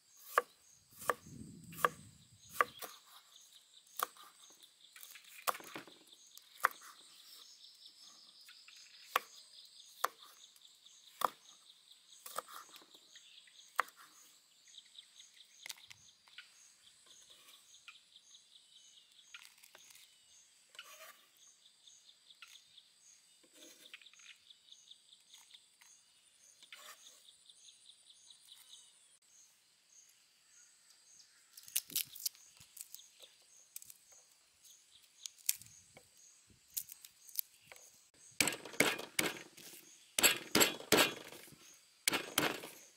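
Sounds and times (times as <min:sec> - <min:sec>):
cleaver chopping on wooden board: 0:00.3 - 0:03.0, 0:38.4 - 0:42.9
insects chirping: 0:27.6 - 0:42.9
slices dropping into stone mortar: 0:38.4 - 0:42.9.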